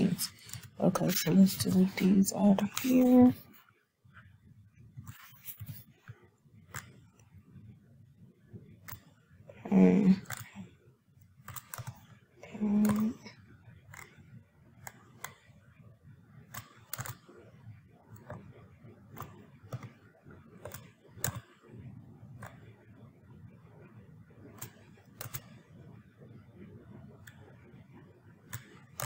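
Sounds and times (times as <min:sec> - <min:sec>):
faint low hum: 0:00.0 - 0:29.0
computer mouse clicks: 0:01.7 - 0:03.2, 0:05.0 - 0:07.3, 0:08.8 - 0:09.2, 0:10.2 - 0:10.6, 0:11.4 - 0:13.3, 0:13.9 - 0:15.6, 0:16.5 - 0:21.6, 0:22.4 - 0:22.9, 0:24.4 - 0:29.0.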